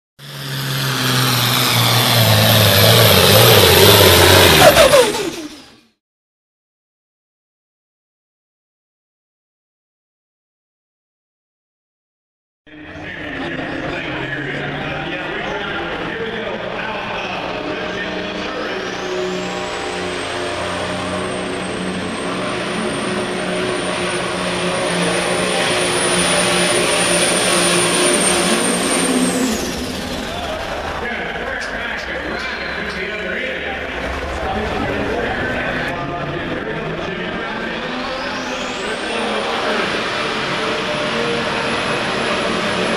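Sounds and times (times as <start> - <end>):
high turbo whistle: 0.2 - 5.8
tractor engine running hard: 0.2 - 5.8, 12.7 - 42.9
falling tones: 0.2 - 5.9, 19.1 - 39.4.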